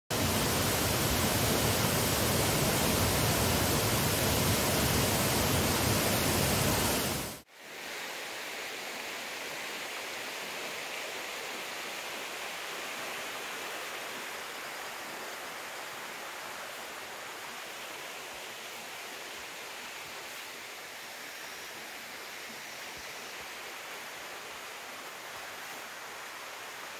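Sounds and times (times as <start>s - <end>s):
waterfall roaring: 0.1s - 7.4s
distant running water: 0.1s - 26.9s.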